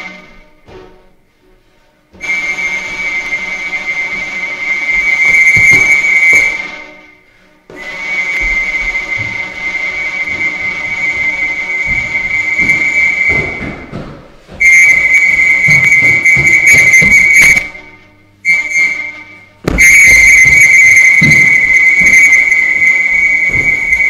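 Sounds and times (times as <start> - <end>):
high whistle-like tone: 2.2 - 7.0, 7.7 - 13.9, 14.6 - 24.0
taps and knocks: 11.9 - 14.7.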